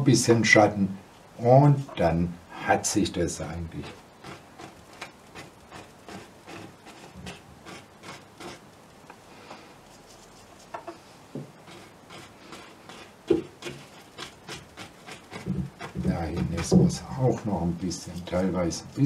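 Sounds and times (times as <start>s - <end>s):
paintbrush scrubbing on canvas: 3.8s - 8.6s, 9.8s - 19.0s.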